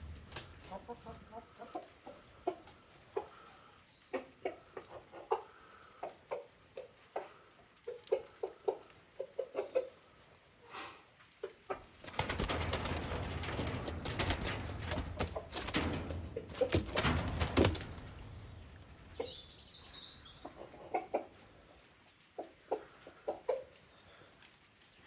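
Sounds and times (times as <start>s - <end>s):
bird wings flapping against mesh: 0.0s - 0.8s, 11.9s - 18.6s
wire mesh rattling: 11.9s - 19.4s.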